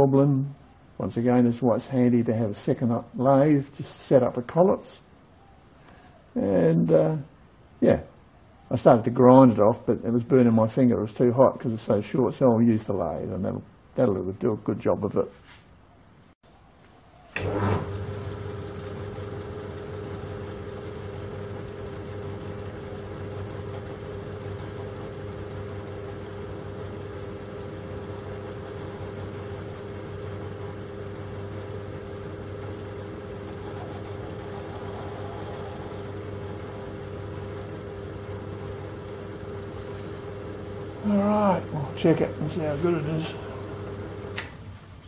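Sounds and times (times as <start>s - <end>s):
lathe running: 17.4s - 44.8s.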